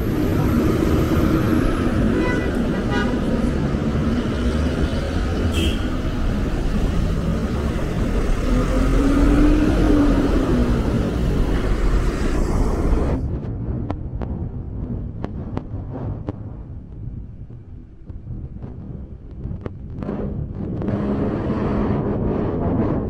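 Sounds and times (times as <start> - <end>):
vehicle engine passing: 0.0 - 13.2
traffic rumble: 0.0 - 23.0.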